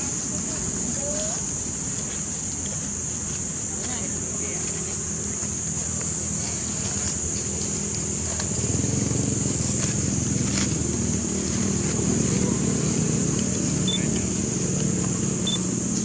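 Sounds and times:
steady high hiss: 0.0s - 16.0s
low vehicle rumble: 4.8s - 16.0s.

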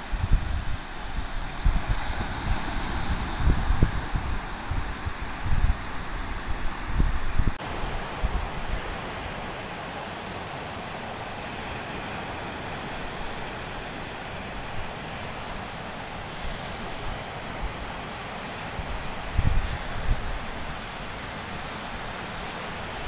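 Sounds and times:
wind buffeting microphone: 0.0s - 9.4s, 18.7s - 23.0s
surf breaking on beach: 0.0s - 23.0s.

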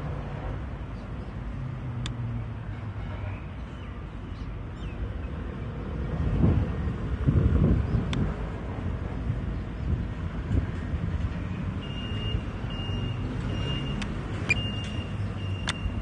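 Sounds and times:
vehicle engine humming: 0.0s - 16.0s
faint click: 2.0s - 2.2s.

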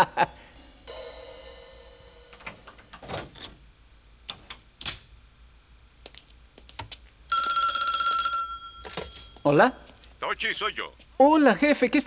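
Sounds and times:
telephone ringing: 7.3s - 9.5s.

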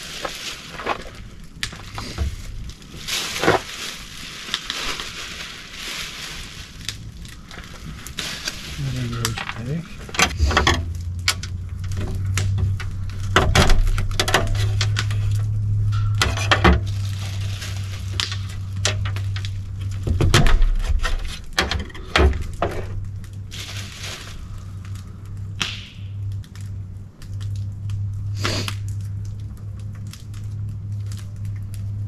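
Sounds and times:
rustling and scraping: 0.0s - 25.5s
cracks and snaps of bone: 10.8s - 15.5s, 24.8s - 32.0s.

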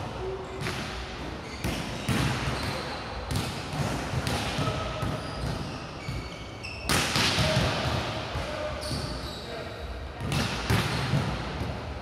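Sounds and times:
shoe squeaks: 1.4s - 3.2s, 4.6s - 7.0s, 8.7s - 9.9s.

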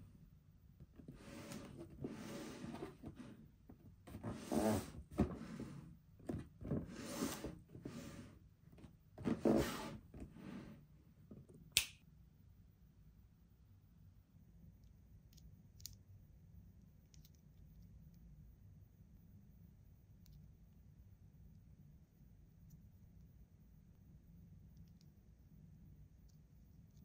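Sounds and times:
cardboard box rubbing and scraping: 4.2s - 5.8s, 9.3s - 10.8s.

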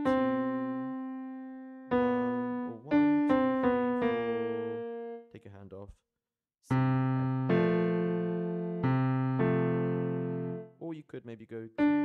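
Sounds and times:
digital piano single notes: 0.0s - 5.2s, 6.7s - 10.7s, 11.8s - 12.0s.

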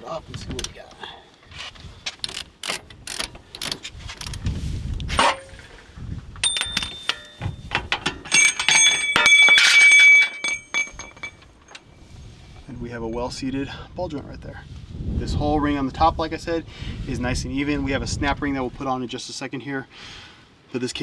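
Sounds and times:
metal cups clinking and ringing: 6.4s - 11.9s.

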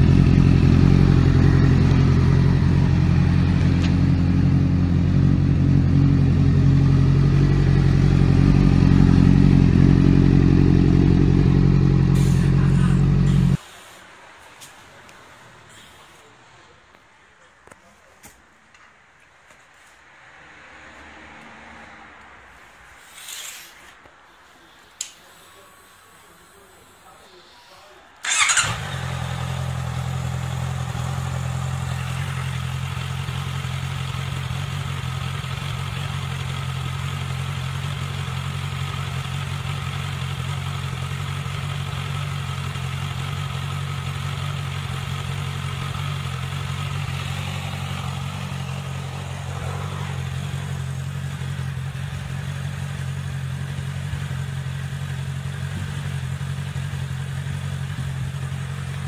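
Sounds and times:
motorcycle engine idling: 0.0s - 13.6s, 28.2s - 59.0s.

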